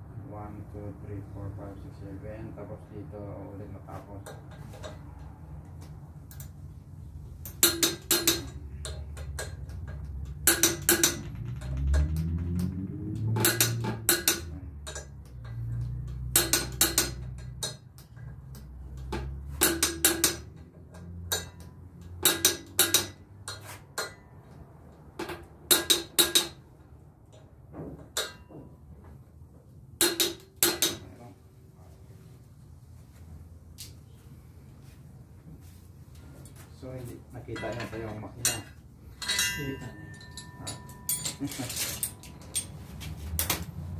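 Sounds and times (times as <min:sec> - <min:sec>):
metal tools clinking on metal: 0:07.4 - 0:24.3, 0:37.5 - 0:43.6.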